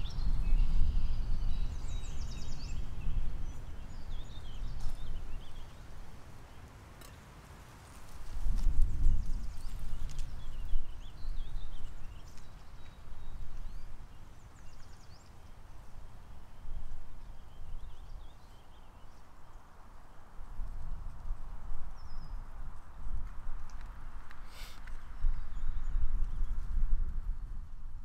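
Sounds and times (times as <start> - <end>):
wind gusting on microphone: 0.0 - 6.2, 7.8 - 28.0
small birds chirping: 0.0 - 7.2, 8.3 - 22.9.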